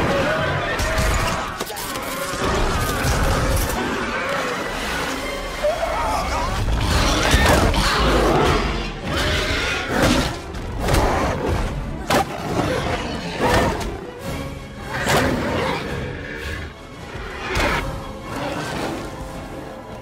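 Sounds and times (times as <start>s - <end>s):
film music score: 0.0s - 20.0s.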